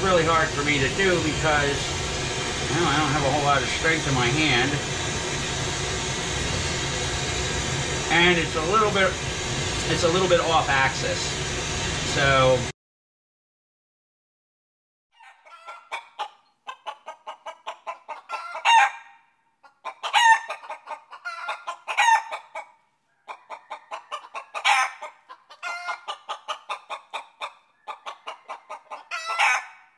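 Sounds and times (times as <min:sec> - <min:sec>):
hen cackling: 0:15.2 - 0:29.9.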